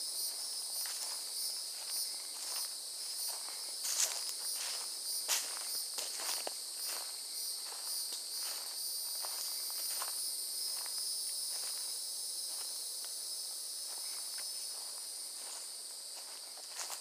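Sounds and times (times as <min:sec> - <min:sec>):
insects chorus: 0:00.0 - 0:17.0
footsteps on leafy trail: 0:00.2 - 0:17.0.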